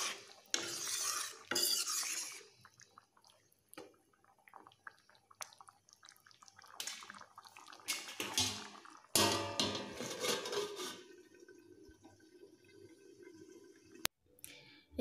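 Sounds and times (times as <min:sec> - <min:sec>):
steel plate scraping and clattering: 0:00.0 - 0:02.4, 0:07.9 - 0:11.1.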